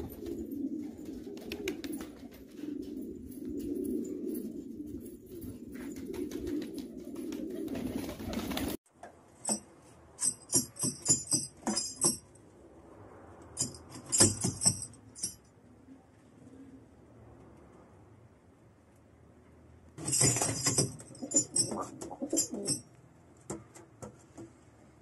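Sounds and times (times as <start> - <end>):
pigeons cooing: 0.0 - 8.7, 21.2 - 22.8.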